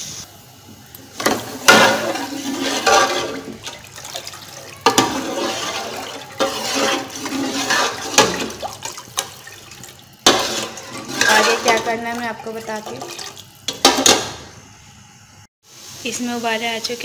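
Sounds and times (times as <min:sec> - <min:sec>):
ladle stirring sloshing gravy: 0:01.2 - 0:14.1.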